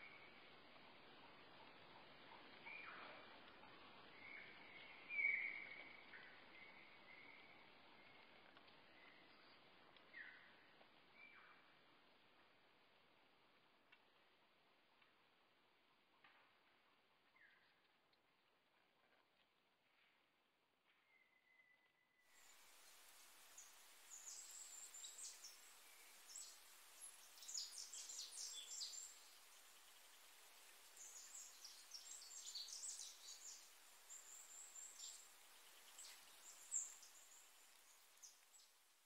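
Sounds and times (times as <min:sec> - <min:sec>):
steady hiss: 0:22.4 - 0:39.0.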